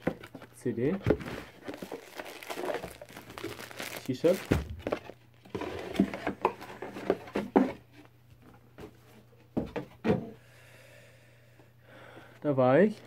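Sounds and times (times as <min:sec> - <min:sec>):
cardboard and paper rustling: 0:00.0 - 0:07.8.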